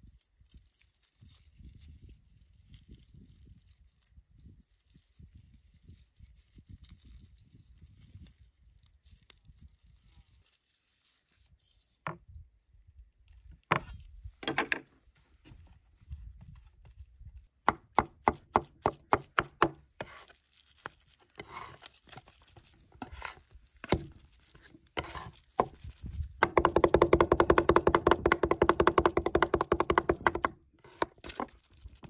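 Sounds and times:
cleaver chopping on wooden board: 17.6 - 20.3, 23.0 - 24.2, 25.0 - 25.8, 26.4 - 31.5.

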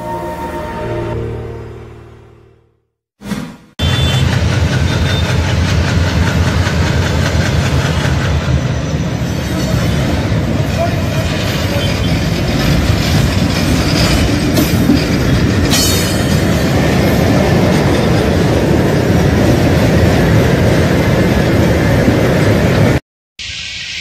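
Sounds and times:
train wheels rolling on rails: 3.8 - 23.0.

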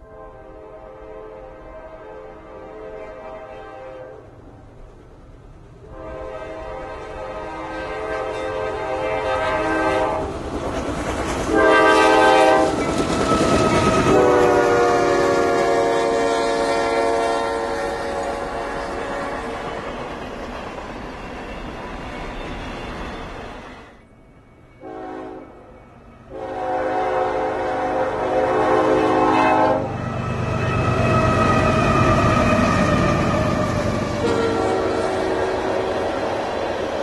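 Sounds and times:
locomotive air horn blasts: 0.0 - 4.2, 5.8 - 10.3, 11.5 - 12.8, 13.5 - 19.7, 24.8 - 25.6, 26.3 - 30.0, 34.1 - 36.2
train rumble and rail clatter: 0.0 - 37.0.

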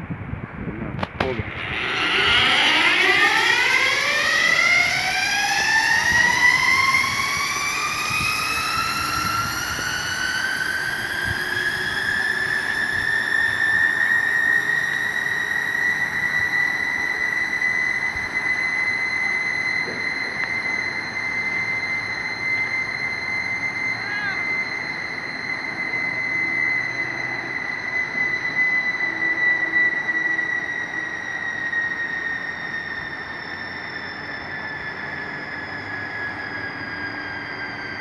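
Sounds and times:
zipline pulleys whining on cable: 1.2 - 38.0.

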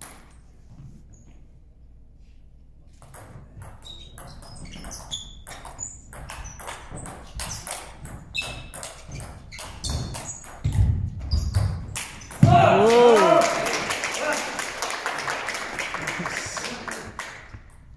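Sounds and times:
shoe squeaks: 1.0 - 1.6, 3.3 - 12.4.

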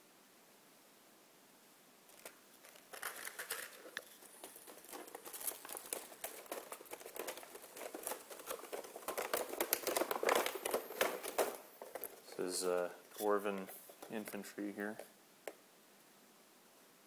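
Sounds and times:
plastic tray crinkling and clicking: 2.1 - 15.6.

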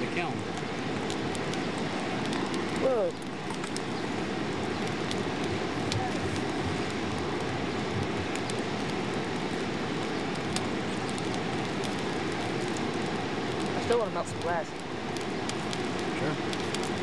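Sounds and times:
coal fire burning with a rush: 0.0 - 17.0
fire crackles: 0.0 - 17.0.

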